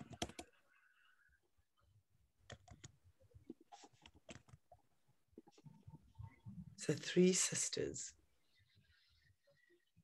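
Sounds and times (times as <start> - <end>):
computer keyboard typing: 0.0 - 0.5, 2.5 - 2.9.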